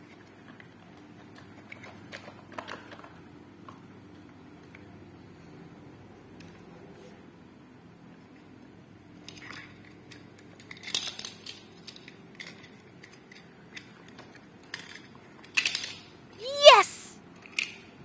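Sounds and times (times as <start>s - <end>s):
plastic toys clacking: 9.3s - 16.1s.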